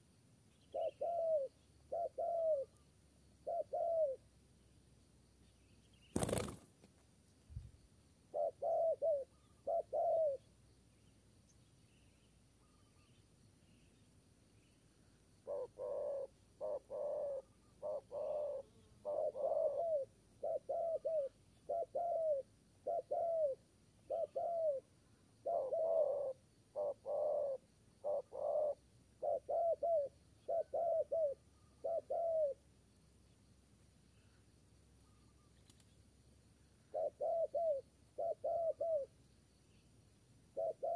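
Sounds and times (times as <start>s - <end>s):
dove cooing: 0.7s - 2.8s, 3.4s - 4.2s, 8.3s - 10.5s, 15.4s - 32.6s, 36.9s - 39.1s, 40.5s - 40.9s.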